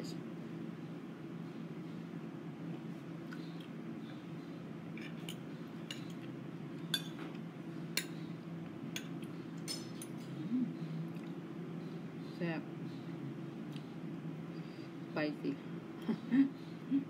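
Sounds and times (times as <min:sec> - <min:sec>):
low background hum: 0:00.0 - 0:17.0
cutlery clinking on a plate: 0:06.9 - 0:07.4, 0:09.0 - 0:10.3.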